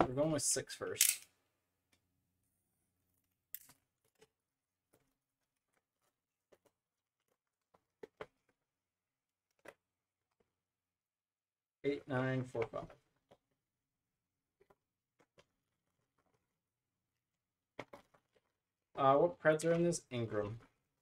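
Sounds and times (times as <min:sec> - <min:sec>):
cards clicking and rustling: 0:17.8 - 0:18.5.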